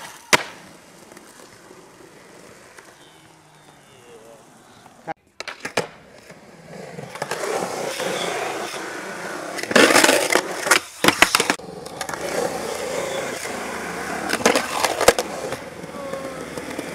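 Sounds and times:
skateboard clacks: 0.0 - 6.3, 9.5 - 16.9
skateboard wheels rolling on concrete: 0.0 - 16.9.

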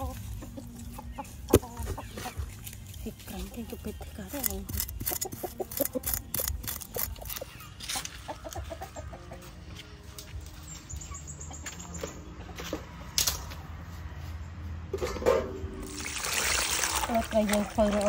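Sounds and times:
chickens clucking: 0.0 - 14.3.

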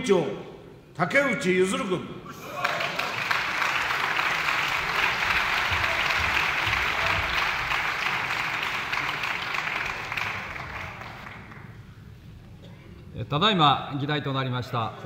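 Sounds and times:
audience applauding: 2.4 - 11.9.

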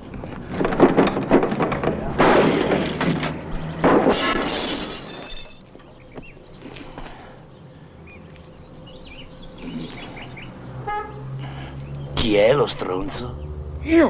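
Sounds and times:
loud crashes with ringing: 3.8 - 5.6.

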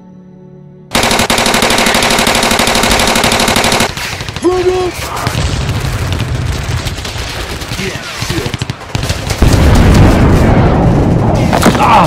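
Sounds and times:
soft music: 0.0 - 0.9
rapid machine-gun fire: 0.9 - 10.6.

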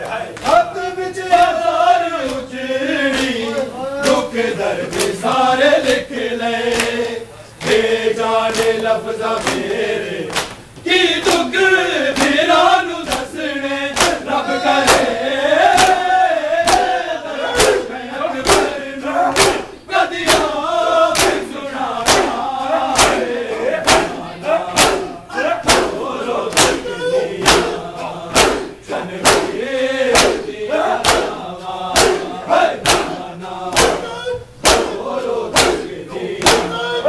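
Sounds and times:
crowd of men chanting: 0.0 - 37.0
hands slapping bare chests: 10.3 - 10.6, 12.2 - 12.4, 14.0 - 14.2, 15.8 - 16.0, 16.7 - 16.9, 17.6 - 17.8, 18.4 - 21.4, 22.0 - 22.4, 23.0 - 23.2, 23.8 - 24.2, 24.8 - 31.4, 32.0 - 36.8.

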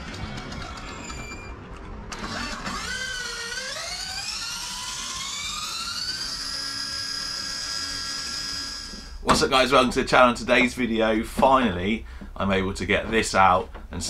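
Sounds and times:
electric motor whining: 0.0 - 9.3.

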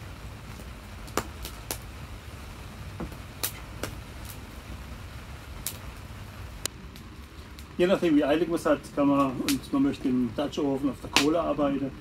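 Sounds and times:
campfire crackling and popping: 0.0 - 12.0
low steady background hum: 0.0 - 12.0.

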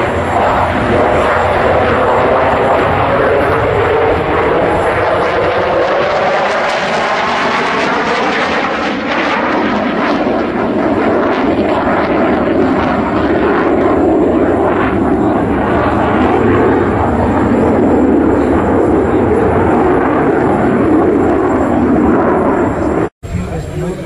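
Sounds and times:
jet engine roar: 0.0 - 24.0.

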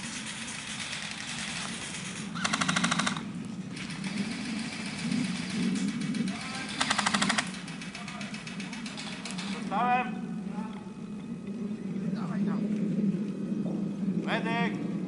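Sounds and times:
airsoft rifle bursts: 0.2 - 9.7.

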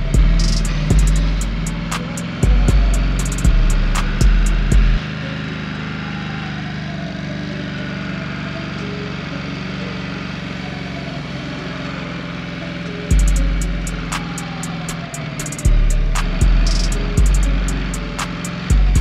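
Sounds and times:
hip-hop beat with kick drums: 0.0 - 5.0, 13.1 - 19.0
motorcycle engine running: 0.0 - 19.0.

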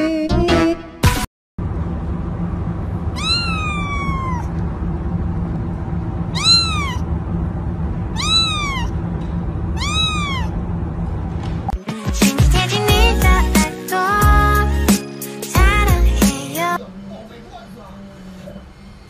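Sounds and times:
cat meowing: 3.1 - 4.6, 6.3 - 7.1, 8.1 - 9.0, 9.8 - 10.6.

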